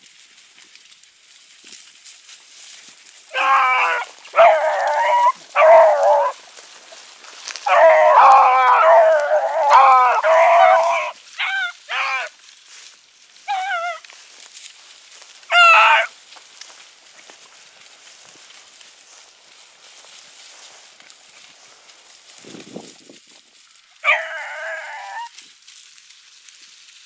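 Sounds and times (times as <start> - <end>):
hounds baying: 3.3 - 6.4, 7.4 - 12.3, 13.4 - 14.1, 15.5 - 16.1, 24.0 - 25.4.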